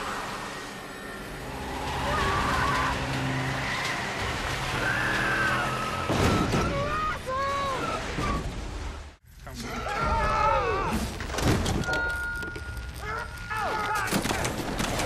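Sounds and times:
tyres skidding and squealing: 0.0s - 11.2s
heavy rain: 1.4s - 6.5s.

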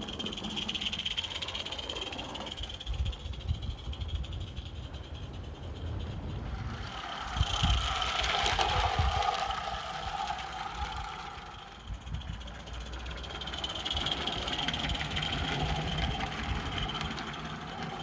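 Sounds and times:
steam locomotive running on track: 0.0s - 18.0s
wind rumble on microphone: 2.5s - 13.0s.

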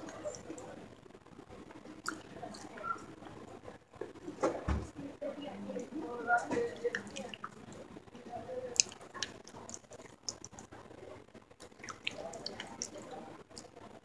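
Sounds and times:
person chewing crunchy clay: 11.6s - 13.0s.

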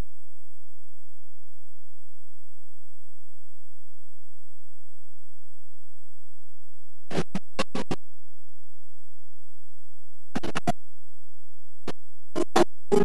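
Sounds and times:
stuttering snatches of music: 7.1s - 8.0s, 10.4s - 10.8s, 12.4s - 13.0s.

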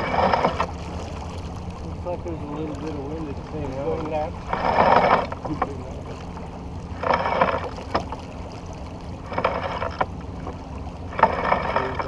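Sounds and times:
low wind rumble: 0.0s - 12.0s
water splashing along boat hull: 0.0s - 12.0s.

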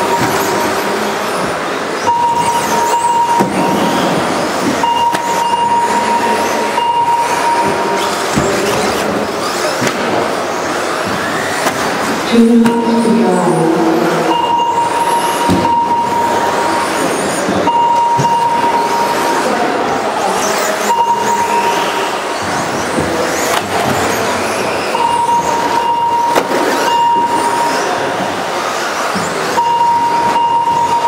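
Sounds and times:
model car motors and tyres: 0.0s - 12.3s, 15.0s - 31.0s
steady high tone: 2.0s - 8.4s, 12.3s - 20.2s, 20.9s - 22.3s.

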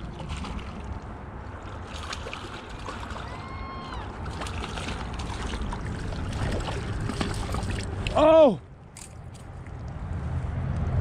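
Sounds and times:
fish splashing: 0.0s - 8.3s.

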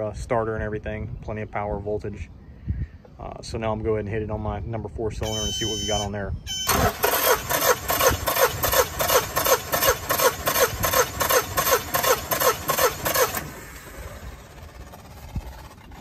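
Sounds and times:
outboard engine starter chugging: 6.6s - 16.0s.

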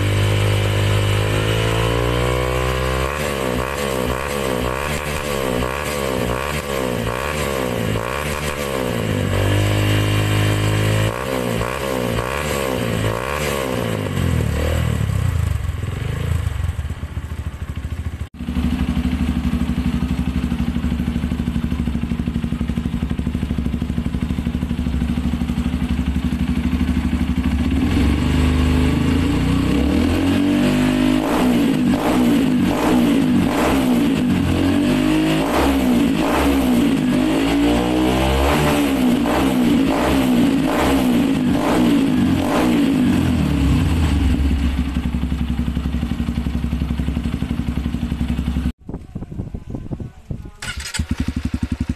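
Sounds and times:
dirt bike engine revving: 0.0s - 16.7s, 18.4s - 48.7s
dirt bike engine idling: 15.2s - 29.7s, 41.3s - 49.1s, 49.7s - 51.9s.

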